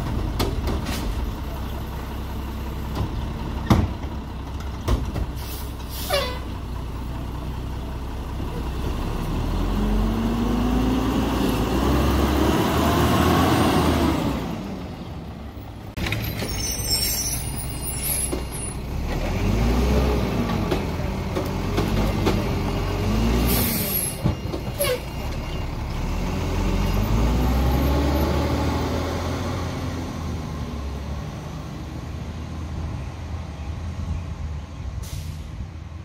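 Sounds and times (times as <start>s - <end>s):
air brake hiss: 5.4s - 6.4s, 35.0s - 35.6s
garbage truck engine revving: 7.8s - 15.1s, 17.6s - 32.6s.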